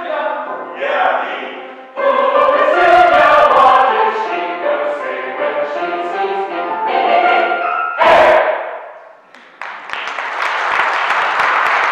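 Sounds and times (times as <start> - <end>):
mixed choir singing in harmony: 0.0 - 9.0.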